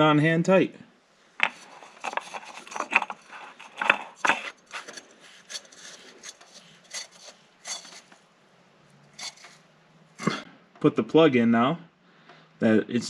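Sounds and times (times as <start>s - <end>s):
hand rubbing oil filter: 1.4s - 8.2s, 9.0s - 10.4s.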